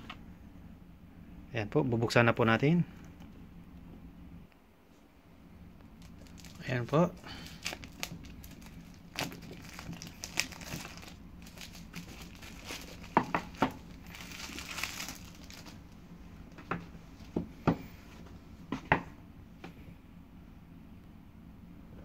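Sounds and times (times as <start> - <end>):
plastic wrapping crinkling and tearing: 6.0 - 16.0.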